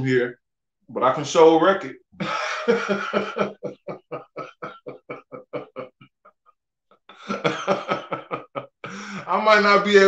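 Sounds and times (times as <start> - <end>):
man laughing heartily: 2.2 - 6.0, 7.1 - 9.3.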